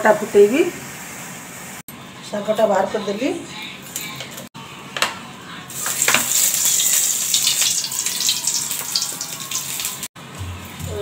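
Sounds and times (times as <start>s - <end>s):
hot oil hissing: 5.7s - 10.1s.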